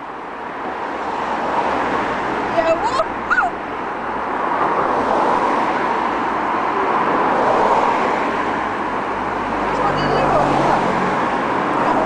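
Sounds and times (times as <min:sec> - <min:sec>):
road traffic rushing: 0:00.0 - 0:12.0.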